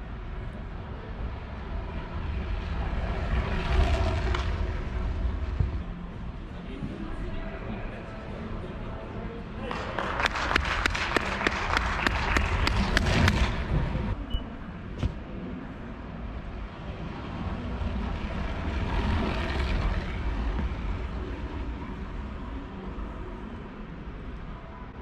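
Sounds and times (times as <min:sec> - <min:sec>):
rhythmic clapping: 0:09.6 - 0:13.8
bicycle rolling on wooden boards: 0:17.2 - 0:22.2.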